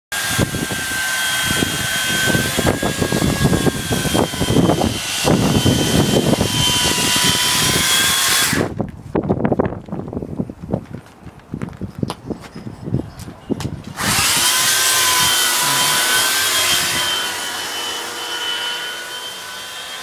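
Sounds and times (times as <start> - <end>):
electric chainsaw cutting ice: 0.1 - 8.8, 13.9 - 20.0.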